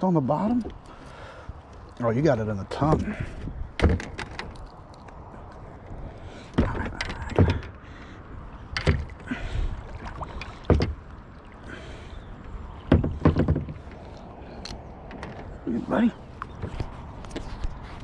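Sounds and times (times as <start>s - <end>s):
plastic kayak hull knocking: 12.9s - 13.8s.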